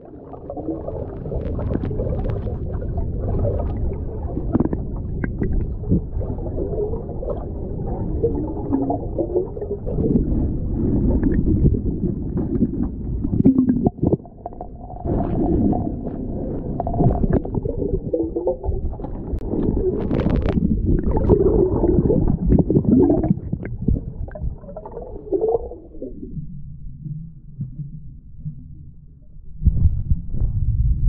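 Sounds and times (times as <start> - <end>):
underwater rushing water: 0.0 - 26.3.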